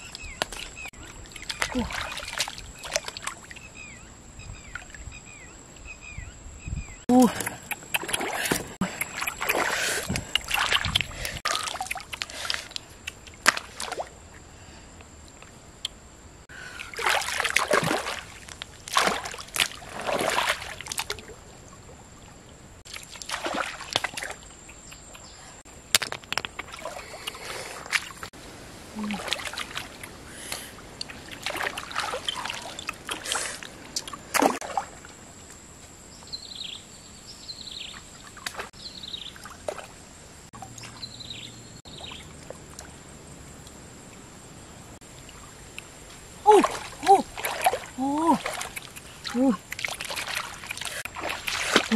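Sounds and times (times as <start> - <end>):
hands splashing in stream water: 0.4 - 3.5, 7.4 - 14.1, 16.8 - 21.3, 22.9 - 24.5, 29.0 - 30.2, 31.0 - 35.1, 46.5 - 51.9.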